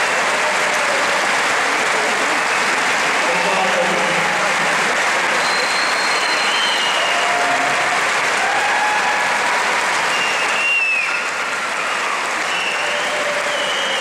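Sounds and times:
audience applauding: 0.0 - 14.0
long high whistles: 5.4 - 7.2, 10.1 - 14.0.

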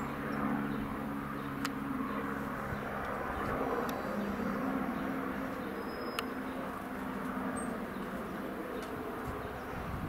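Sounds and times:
helicopter rotor humming: 0.0 - 10.0.

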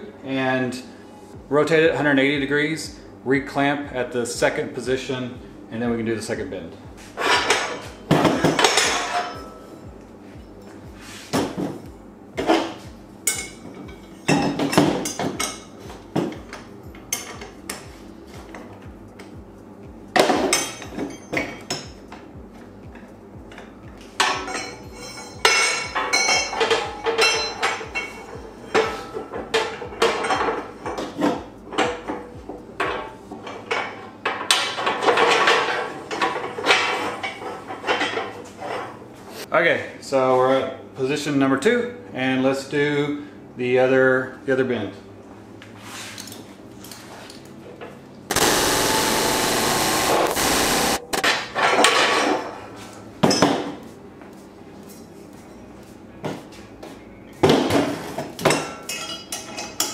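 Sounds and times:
metal tube parts clanking: 24.2 - 32.0.

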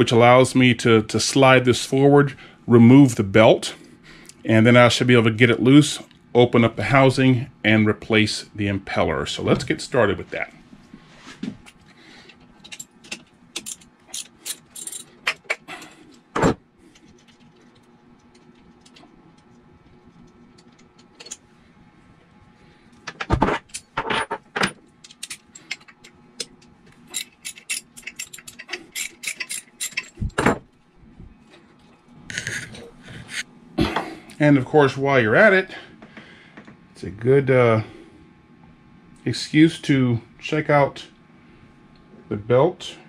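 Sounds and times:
wrench and ratchet clicking on bolts: 27.1 - 30.2.

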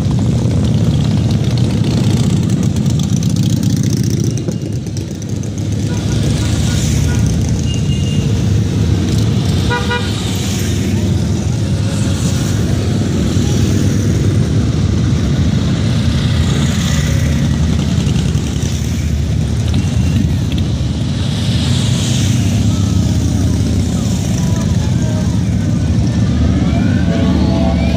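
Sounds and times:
motorcycle engines rumbling: 0.0 - 27.9
horn toot: 9.6 - 10.2.

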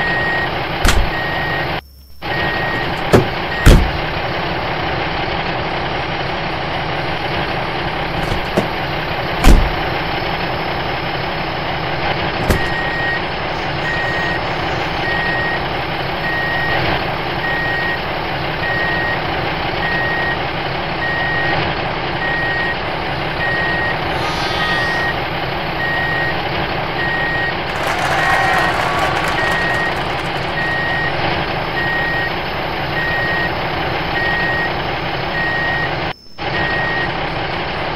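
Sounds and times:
reversing alarm beeping: 0.0 - 3.9, 12.6 - 19.2, 22.2 - 26.4, 27.0 - 37.2
truck engine running: 2.4 - 24.2.

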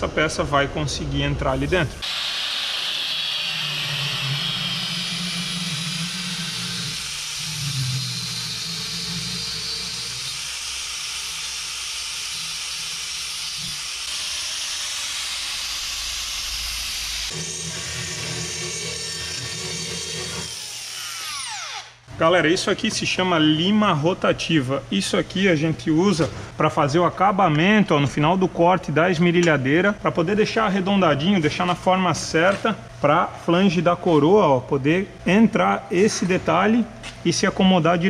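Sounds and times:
angle grinder grinding steel: 2.0 - 22.0.

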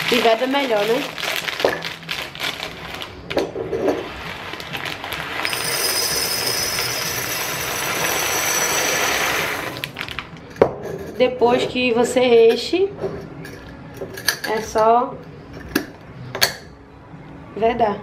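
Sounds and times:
plastic bag crinkling: 0.0 - 3.4, 4.0 - 10.4
beans pouring into glass jar: 4.0 - 10.2.

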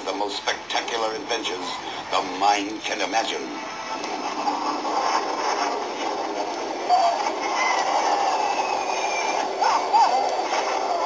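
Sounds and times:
dense noisy film soundtrack: 0.0 - 11.0.

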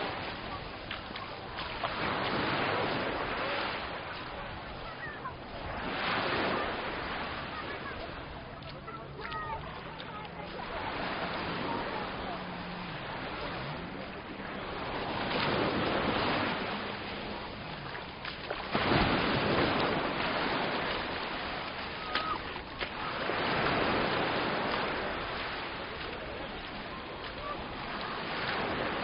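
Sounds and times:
sea waves breaking on shore: 0.0 - 29.0.

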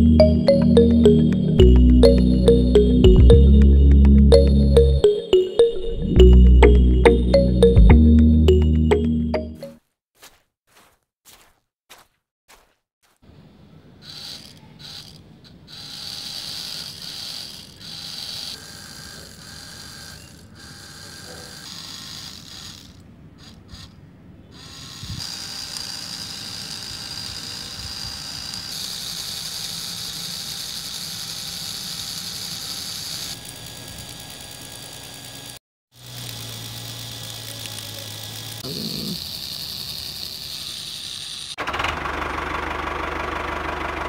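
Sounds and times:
flywheel and gears whirring and rattling: 14.0 - 24.0, 24.6 - 44.0
small electric motors whining: 14.0 - 41.6.

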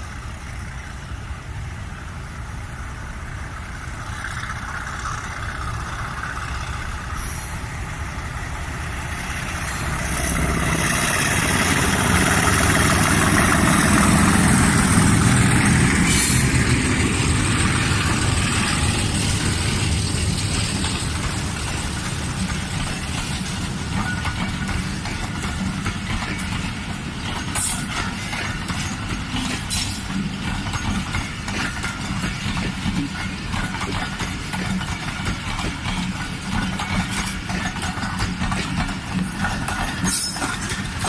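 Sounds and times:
diesel locomotive engine idling: 0.0 - 41.0.

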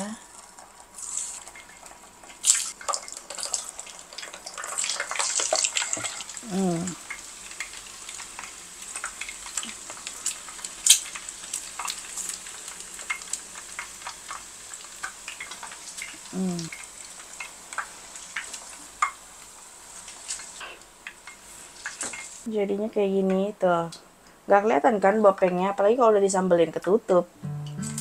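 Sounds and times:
eggs deep-frying in hot oil: 0.0 - 27.0.

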